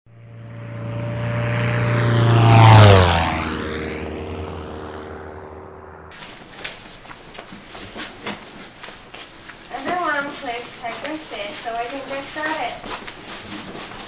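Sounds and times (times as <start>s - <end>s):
airplane engine drone: 0.1s - 6.2s.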